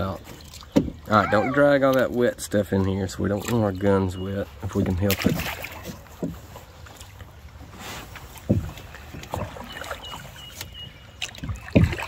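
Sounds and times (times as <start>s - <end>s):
paddle moving through water: 0.0s - 12.0s
paddle knocking against canoe: 0.2s - 2.1s, 4.7s - 7.0s, 8.3s - 12.0s.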